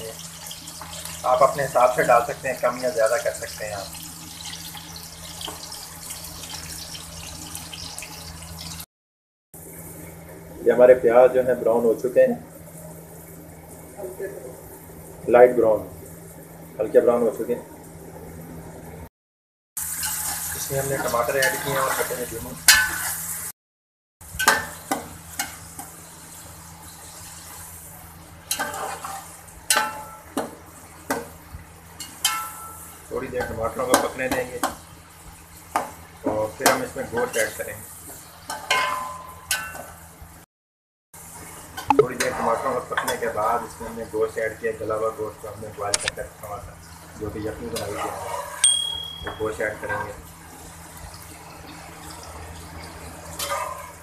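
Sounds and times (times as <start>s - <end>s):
onions sizzling in hot oil: 0.0s - 8.9s, 19.8s - 23.5s, 24.2s - 40.4s.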